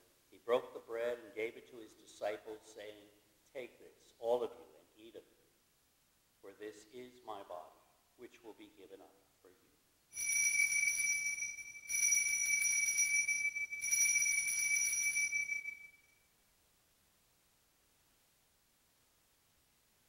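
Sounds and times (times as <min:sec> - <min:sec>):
altar bells jingling: 0:10.1 - 0:16.1.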